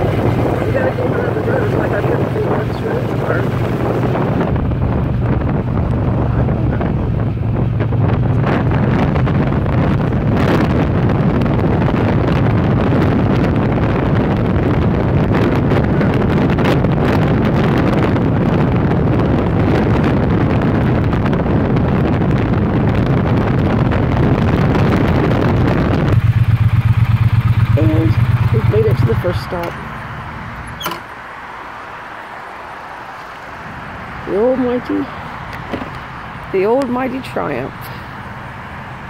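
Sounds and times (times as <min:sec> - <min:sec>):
motorcycle engine running: 0:00.0 - 0:31.1
wind buffeting microphone: 0:00.0 - 0:39.0.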